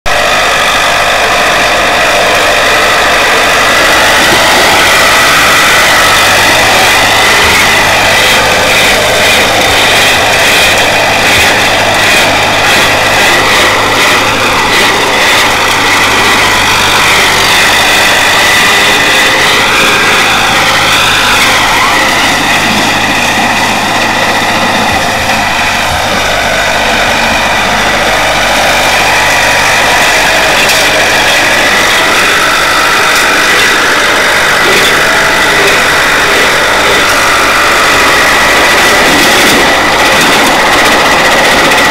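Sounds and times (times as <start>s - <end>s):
tractor diesel engine under load: 0.0s - 41.9s.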